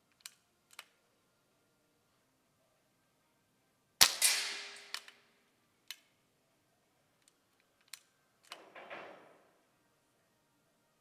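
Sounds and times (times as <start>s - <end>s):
light clicks: 0.1s - 1.0s, 7.2s - 8.7s
air rifle shots: 4.0s - 5.1s.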